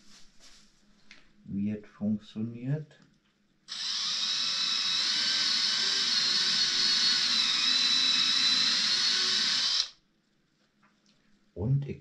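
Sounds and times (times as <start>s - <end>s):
cordless drill high-pitched whine: 3.7s - 10.0s.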